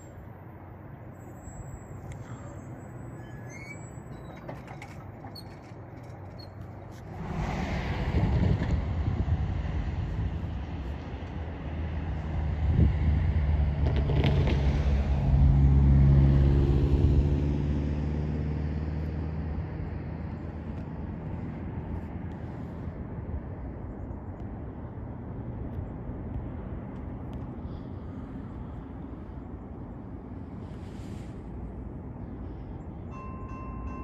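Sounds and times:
train passing by: 7.0s - 16.6s, 28.2s - 34.0s.

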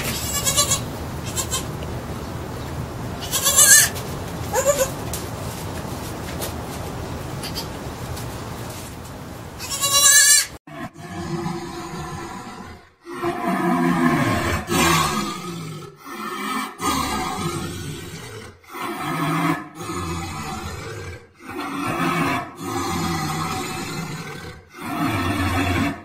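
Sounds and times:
outdoor background noise: 0.0s - 26.0s
young livestock bleating: 0.1s - 1.7s, 3.2s - 5.0s, 9.6s - 10.5s.

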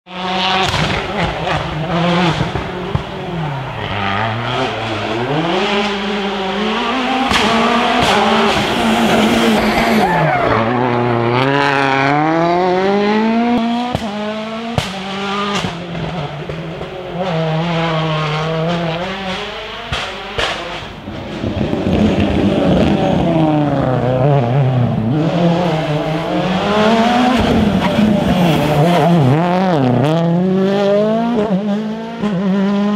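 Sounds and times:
rally car engines revving: 0.1s - 32.9s
exhaust pops: 0.6s - 3.2s, 7.2s - 10.0s, 13.8s - 17.0s.

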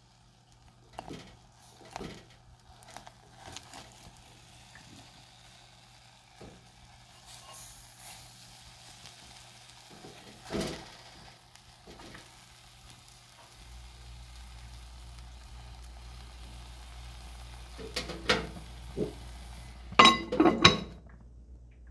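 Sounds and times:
sweet potatoes sizzling faintly: 0.0s - 21.1s
knocks of food being moved: 0.9s - 4.2s, 9.9s - 11.0s
cookware clatter: 20.0s - 21.1s.

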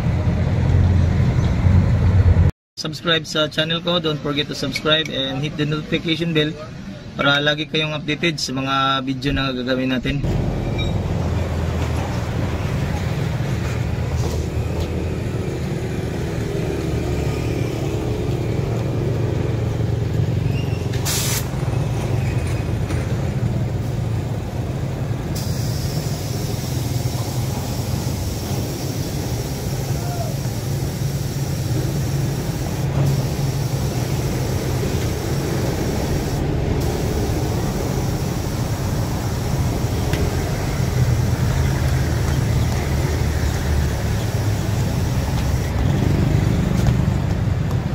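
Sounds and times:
street traffic passing: 0.0s - 47.9s
low engine rumble: 10.1s - 47.9s.

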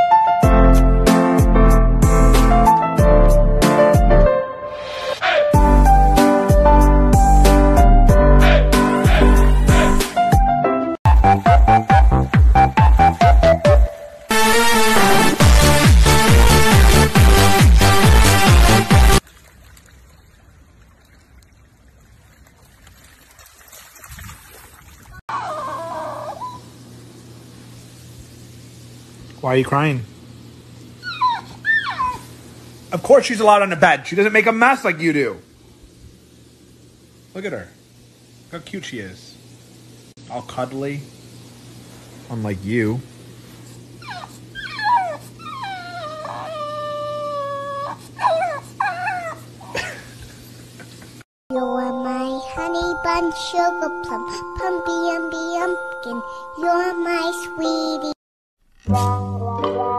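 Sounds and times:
dog whining: 8.4s - 10.0s, 25.3s - 26.8s, 31.0s - 32.3s, 44.0s - 49.8s.

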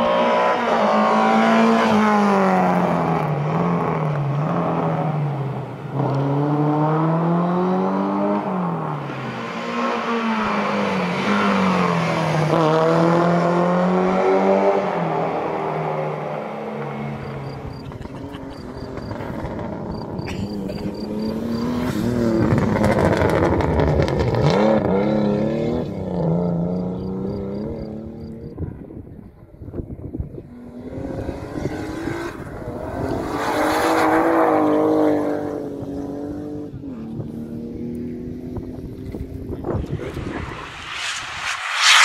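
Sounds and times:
rally car engine revving: 0.0s - 28.4s
wind rumble on microphone: 28.4s - 33.3s, 36.8s - 42.0s.

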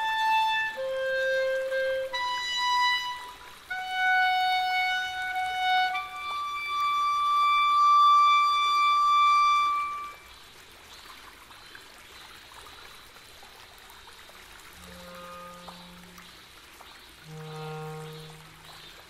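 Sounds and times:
clarinet long high note: 0.0s - 10.2s, 14.8s - 16.2s, 17.2s - 18.8s.

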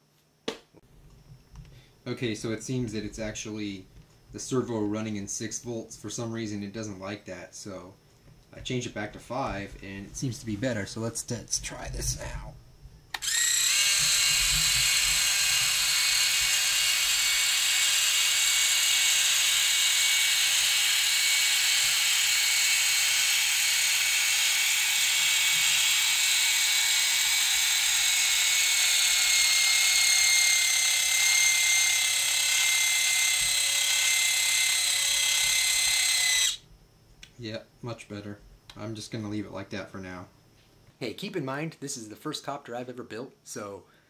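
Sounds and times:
servo whirring: 13.1s - 36.6s.

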